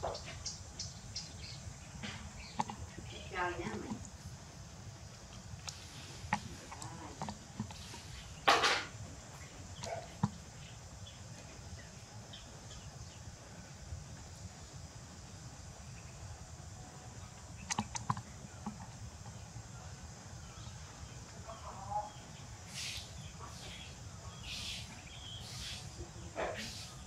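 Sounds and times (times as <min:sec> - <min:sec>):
low steady hum: 0:00.0 - 0:27.0
sharp clicks: 0:17.6 - 0:18.8.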